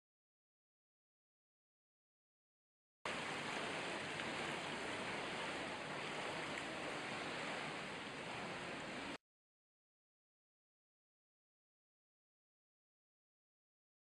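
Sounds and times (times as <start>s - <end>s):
pool water splashing: 3.1s - 9.2s.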